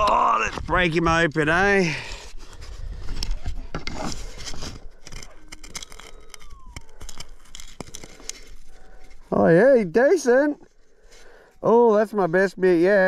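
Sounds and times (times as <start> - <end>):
crumbling dirt clicks and scrapes: 0.0 - 13.0
rubbing handling noise: 0.6 - 13.0
faint falling tone: 5.2 - 8.4.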